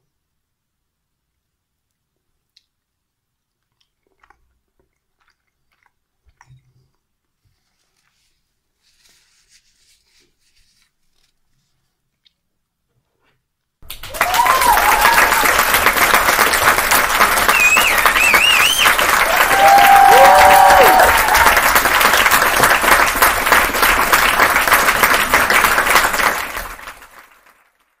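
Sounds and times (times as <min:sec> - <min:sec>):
crowd applauding: 0:13.8 - 0:27.9
whistles and whoops: 0:14.0 - 0:15.8, 0:17.3 - 0:21.8.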